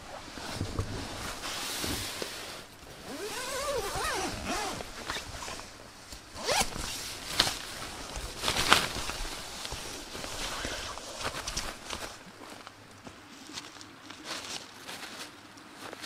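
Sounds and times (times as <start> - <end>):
clothing and gear rustling: 0.0 - 16.0
zipper pulled: 2.9 - 5.7, 6.4 - 7.6.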